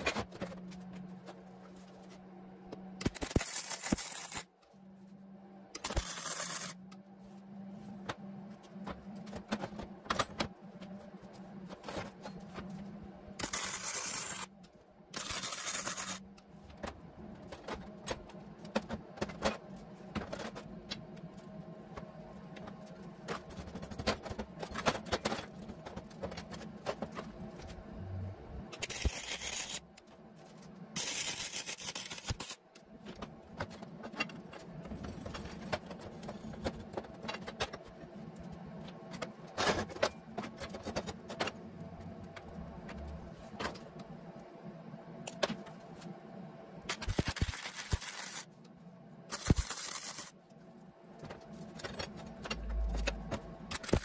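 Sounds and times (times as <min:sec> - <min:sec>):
steady low hum: 0:00.0 - 0:54.0
arc welding on metal: 0:03.0 - 0:04.5, 0:05.8 - 0:06.8, 0:13.4 - 0:14.5, 0:15.2 - 0:16.2, 0:28.8 - 0:29.8, 0:31.0 - 0:32.6, 0:46.9 - 0:48.5, 0:49.3 - 0:50.3, 0:53.7 - 0:54.0.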